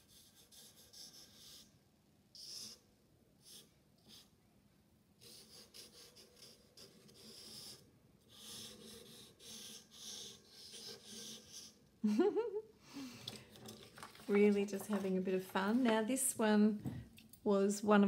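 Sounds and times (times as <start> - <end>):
marker drawing on paper: 0.0 - 1.8, 2.4 - 2.8, 3.4 - 4.3, 5.2 - 11.8.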